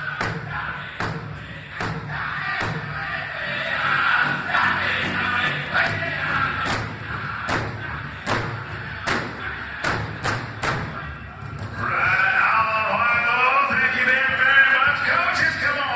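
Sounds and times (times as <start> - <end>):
high-pitched male singing: 0.0 - 11.2, 11.8 - 15.9
big drum beats: 0.0 - 15.9.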